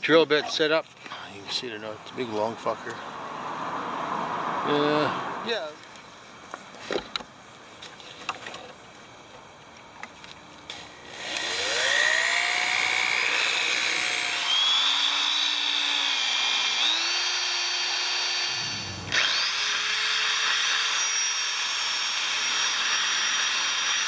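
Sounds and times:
electric drill whining: 0:11.0 - 0:24.0
drill bit bogging thump: 0:18.5 - 0:19.7.

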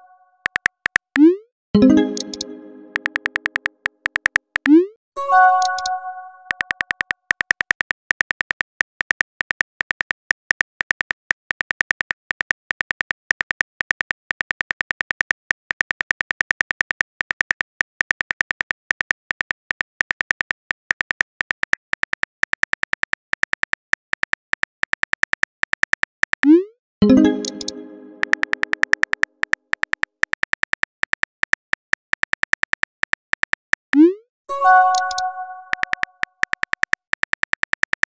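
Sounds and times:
keyboard tap clicks: 0:02.0 - 0:04.8, 0:05.6 - 0:08.4, 0:27.1 - 0:30.6, 0:34.9 - 0:38.0.

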